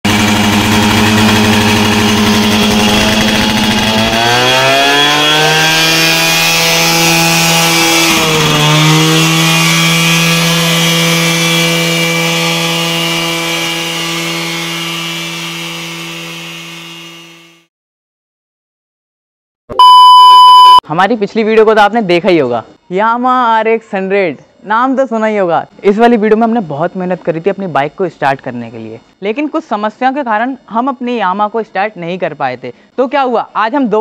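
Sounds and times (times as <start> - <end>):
motorcycle engine idling and revving: 0.1 - 15.4.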